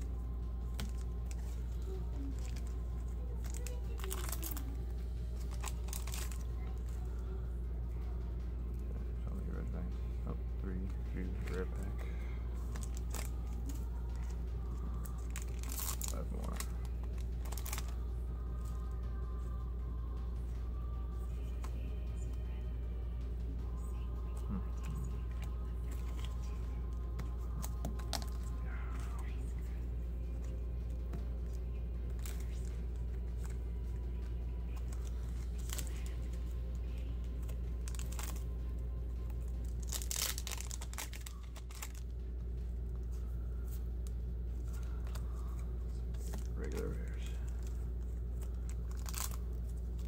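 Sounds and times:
low electrical hum: 0:00.0 - 0:50.0
wrapper tearing and crinkling: 0:00.7 - 0:04.8, 0:05.4 - 0:06.6, 0:12.6 - 0:14.3, 0:15.0 - 0:18.0, 0:27.6 - 0:29.3, 0:32.1 - 0:32.8, 0:34.7 - 0:36.2, 0:37.4 - 0:38.5, 0:39.5 - 0:42.1, 0:44.7 - 0:50.0.

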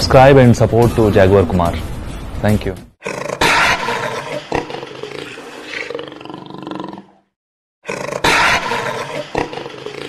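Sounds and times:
big cat growling and roaring: 0:03.0 - 0:10.0.

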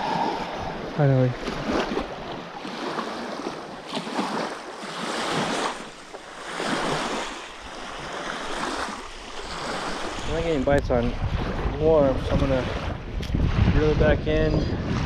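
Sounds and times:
waves lapping on sandy shore: 0:00.0 - 0:14.2.

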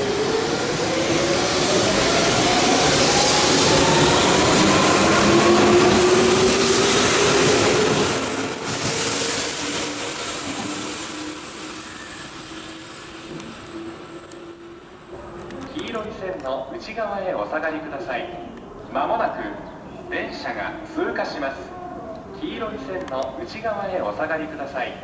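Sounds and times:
electric train motors whining: 0:01.8 - 0:15.6.

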